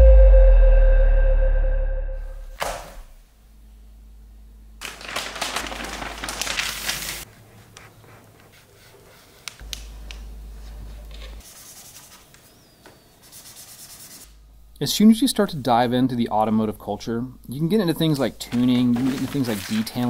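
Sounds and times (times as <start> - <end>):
paper map rustling: 4.8 - 12.6, 17.8 - 20.0
marker scratching on paper: 7.3 - 9.6, 10.6 - 12.5, 13.2 - 14.4.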